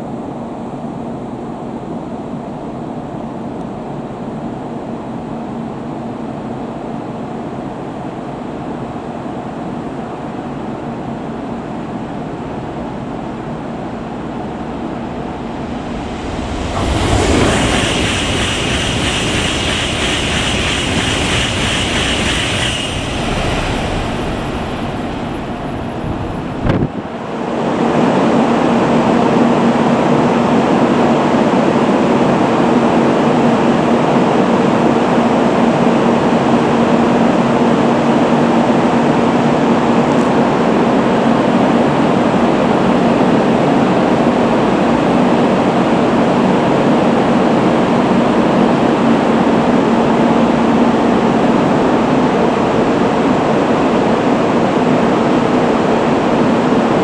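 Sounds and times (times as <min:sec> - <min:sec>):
train equipment hum: 0:09.2 - 0:27.4
rushing sound with high whine: 0:12.6 - 0:27.7.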